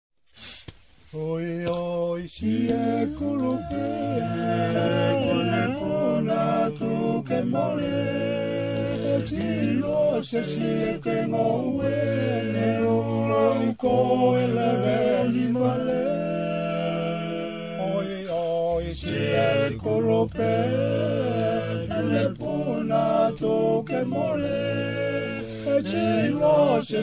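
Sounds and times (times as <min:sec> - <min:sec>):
men singing unaccompanied in harmony: 0:01.1 - 0:27.0.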